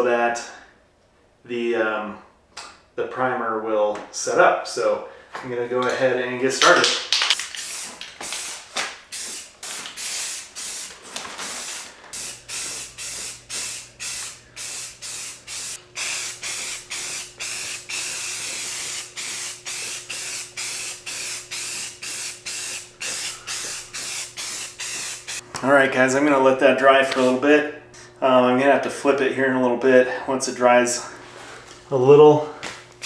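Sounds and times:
aerosol spray can hissing: 0:07.2 - 0:25.4.

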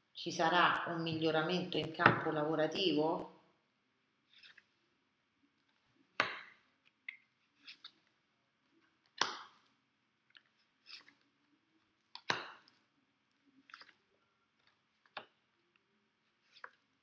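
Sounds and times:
cards swishing and slapping: 0:04.3 - 0:04.8, 0:07.5 - 0:08.0, 0:10.4 - 0:11.3, 0:13.6 - 0:15.3, 0:16.4 - 0:16.9.

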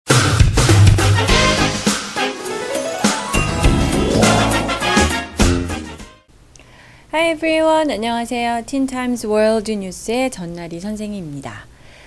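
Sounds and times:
upbeat jingle music: 0:02.2 - 0:05.9
drum hits: 0:03.4 - 0:05.7.

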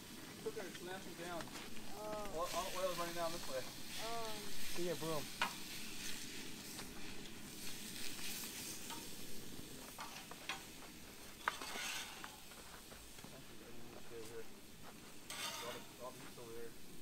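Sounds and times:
food sizzling on camp stove: 0:00.0 - 0:17.0
child's voice: 0:04.0 - 0:04.5.

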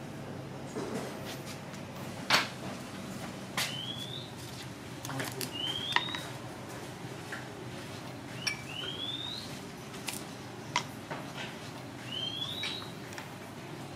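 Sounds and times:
bird whistled chirp: 0:03.7 - 0:04.3, 0:05.5 - 0:06.2, 0:08.4 - 0:09.5, 0:12.1 - 0:12.9.

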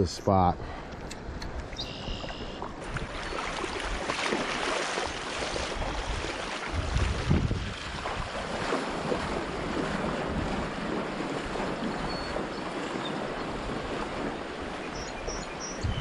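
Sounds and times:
feet wading and splashing: 0:00.7 - 0:16.0
water rushing over rocks: 0:02.7 - 0:14.7.

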